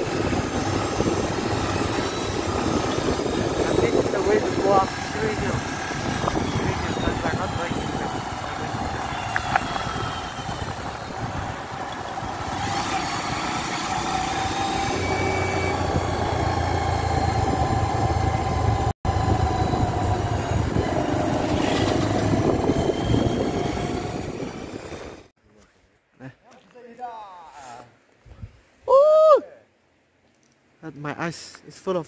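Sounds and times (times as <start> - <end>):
road and wind noise: 0.0 - 25.3
vehicle engine running: 0.0 - 25.3.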